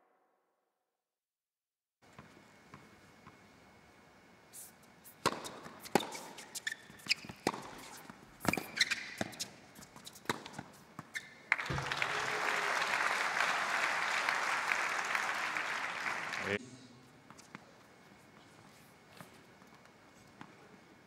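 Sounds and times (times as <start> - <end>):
racket striking tennis ball: 5.2 - 9.5
crowd applause: 11.5 - 16.6.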